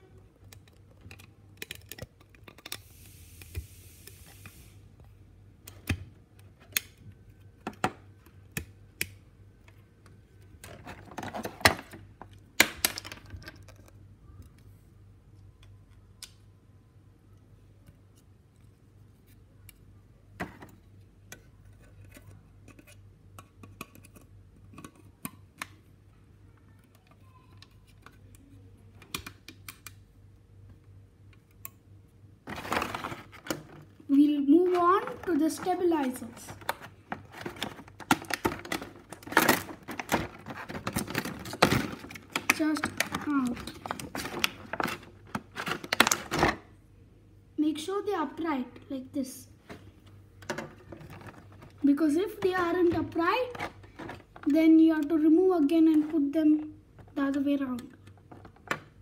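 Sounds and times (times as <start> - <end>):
faint steady hum: 0.0 - 59.0
plastic clicks and taps: 29.0 - 30.0
plastic crackling: 32.4 - 46.7, 50.4 - 55.2.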